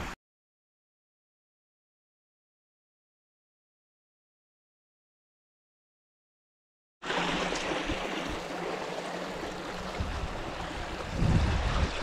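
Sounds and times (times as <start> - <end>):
creek water rushing over rocks: 7.0 - 12.0
wind rumble on microphone: 9.8 - 12.0.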